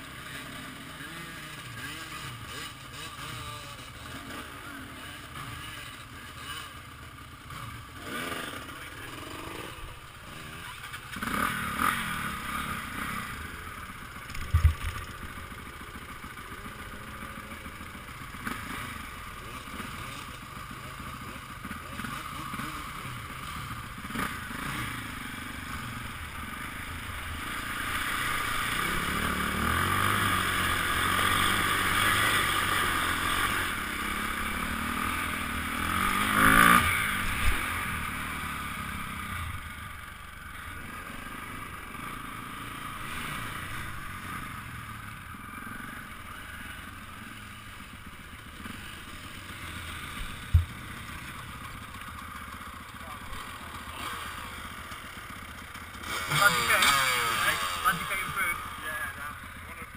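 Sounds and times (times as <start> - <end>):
motorcycle engine: 0.0 - 59.9
sharp thump: 50.5 - 50.8.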